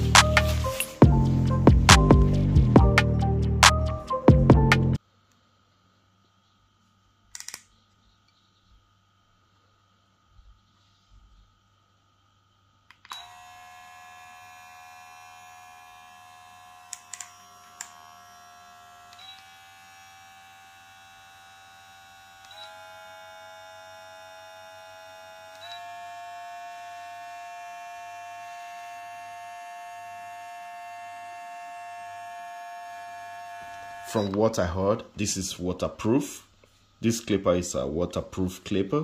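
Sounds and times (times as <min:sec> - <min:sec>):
hair clipper motor whine: 0:00.0 - 0:03.1, 0:12.9 - 0:35.0.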